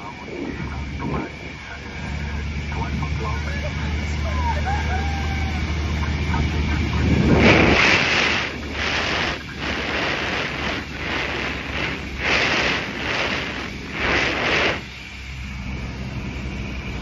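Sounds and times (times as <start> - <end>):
aircraft engine droning: 0.0 - 17.0
loud rushing noise in surges: 5.4 - 15.2.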